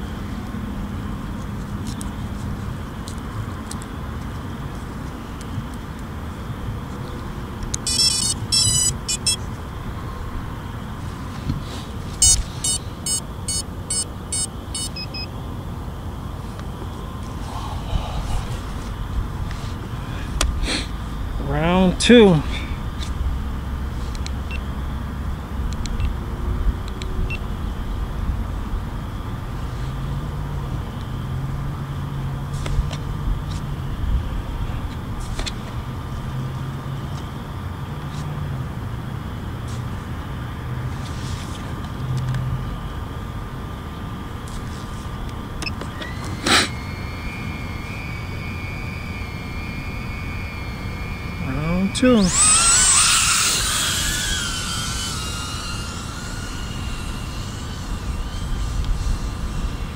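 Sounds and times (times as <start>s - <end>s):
low hum: 0.0s - 22.0s, 44.9s - 59.9s
low outdoor rumble: 0.0s - 41.0s, 41.6s - 59.9s
electronic beeps: 7.8s - 9.4s, 12.2s - 15.3s
steady low rumble: 15.4s - 24.6s, 46.9s - 59.9s.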